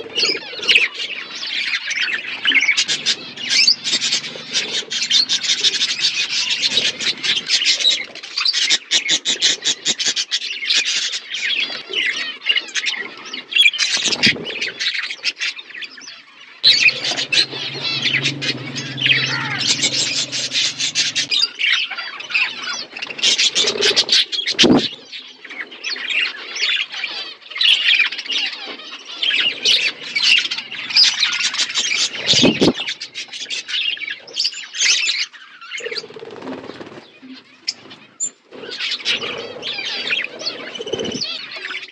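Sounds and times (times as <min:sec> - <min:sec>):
budgerigars chattering: 0:00.0 - 0:08.1, 0:16.6 - 0:21.6, 0:23.2 - 0:24.9.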